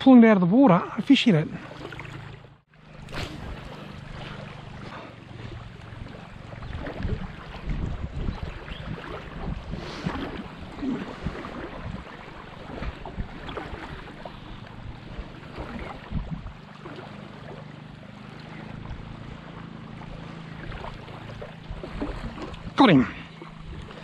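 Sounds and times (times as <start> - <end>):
water sloshing around legs: 1.0 - 24.0
wind on microphone: 3.0 - 16.7.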